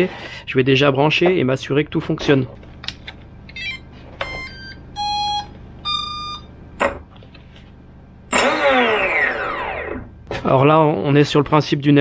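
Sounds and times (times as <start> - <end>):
motor power-up tones: 3.6 - 6.4, 8.3 - 10.1
long steady beeps: 4.4 - 6.5.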